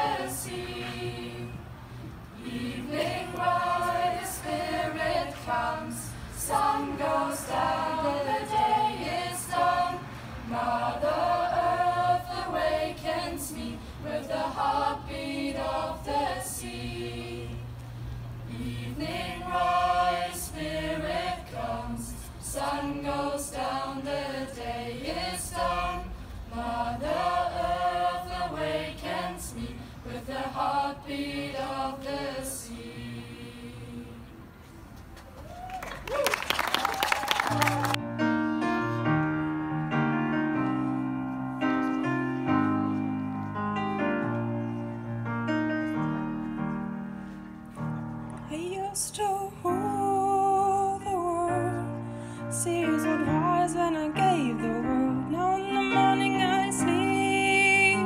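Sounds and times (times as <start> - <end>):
choir singing a cappella: 0.0 - 34.6, 48.9 - 58.0.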